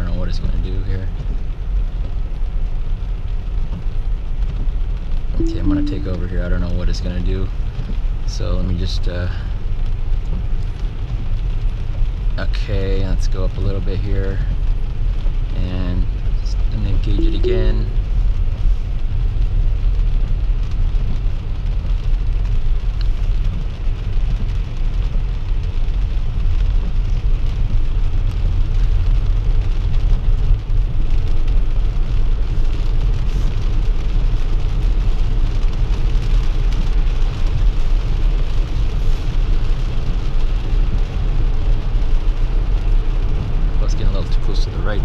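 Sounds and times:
low road rumble in car cabin: 0.0s - 5.4s, 6.1s - 45.0s
rain on car: 0.0s - 45.0s.

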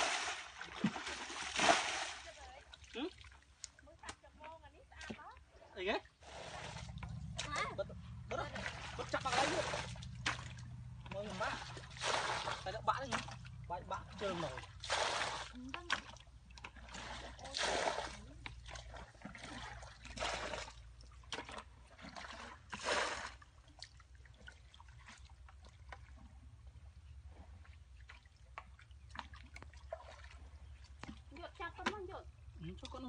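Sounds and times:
water poured from bucket splashing: 0.0s - 2.4s, 6.2s - 7.0s, 8.6s - 10.6s, 11.3s - 13.4s, 14.2s - 15.6s, 16.8s - 23.4s
hands sloshing in muddy water: 0.0s - 3.8s, 6.2s - 26.6s, 27.5s - 31.6s.

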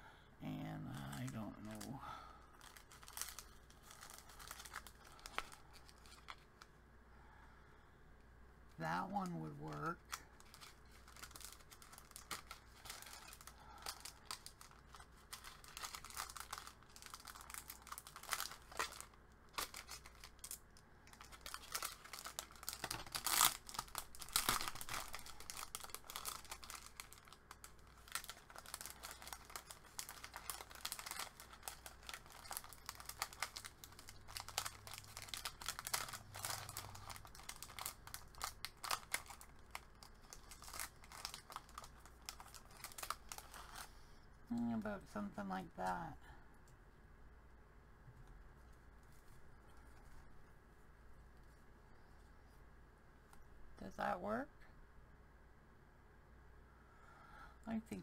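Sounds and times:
paper rustling and crinkling: 2.6s - 6.6s, 10.4s - 43.9s.

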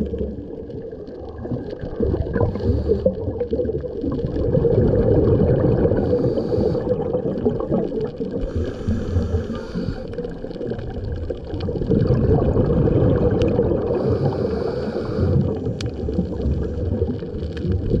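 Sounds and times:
muffled underwater water noise: 0.0s - 18.0s.

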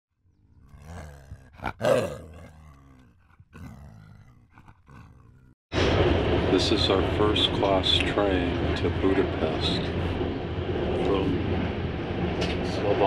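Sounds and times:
animal roaring and growling: 0.4s - 5.6s.

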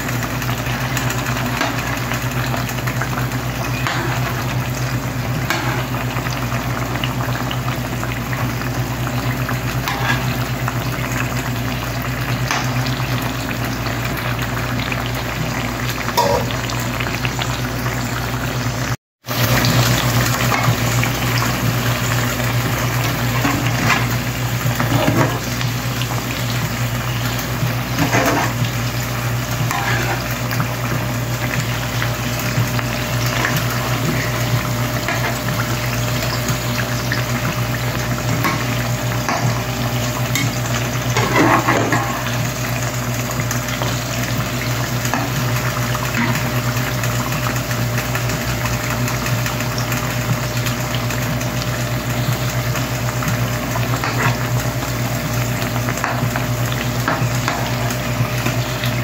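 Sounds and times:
slices sizzling in hot oil: 0.0s - 59.0s
spatula scraping: 28.0s - 28.6s, 29.6s - 30.4s.

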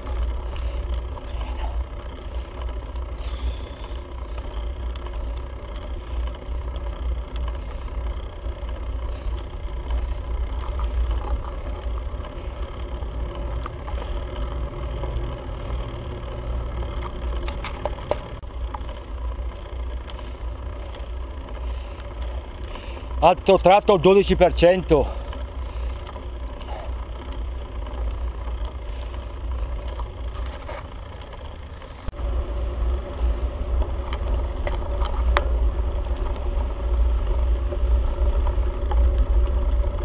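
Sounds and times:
wind rumble on microphone: 32.1s - 40.0s.

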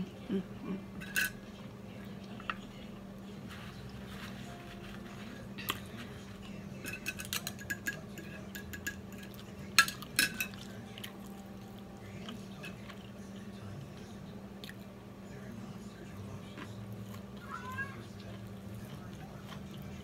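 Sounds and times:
fork clinking against plate: 1.0s - 1.4s, 6.8s - 11.1s.

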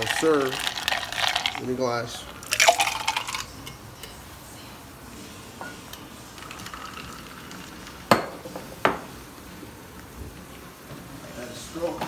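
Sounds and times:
liquid pouring into a glass: 0.0s - 1.8s, 2.4s - 3.6s, 6.4s - 8.1s.

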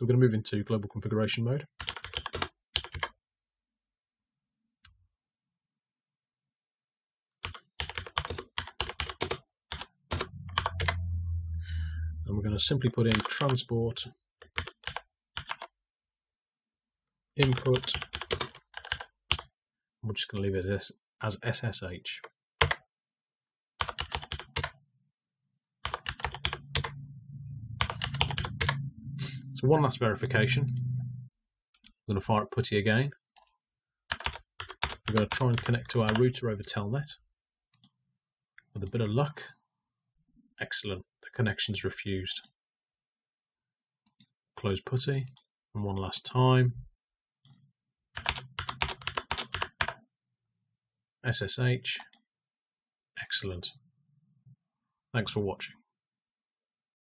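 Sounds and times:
keyboard typing: 1.8s - 3.1s, 7.4s - 12.2s, 14.4s - 15.7s, 17.4s - 19.5s, 22.6s - 22.8s, 23.8s - 24.8s, 25.8s - 29.2s, 34.1s - 36.2s, 48.2s - 50.0s.

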